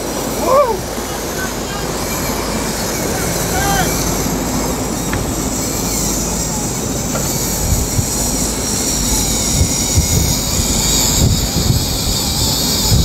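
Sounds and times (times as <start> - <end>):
low engine rumble: 0.0 - 13.0
wind and sea rushing: 0.0 - 13.0
wind gusts thumping microphone: 3.4 - 13.0.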